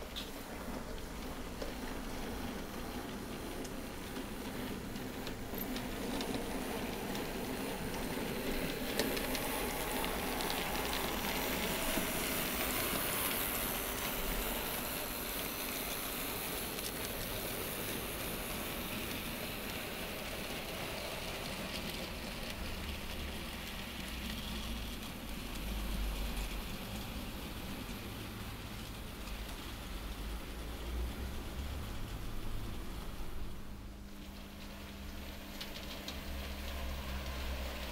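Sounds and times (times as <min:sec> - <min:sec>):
model train wheels rattling: 0:00.0 - 0:28.5.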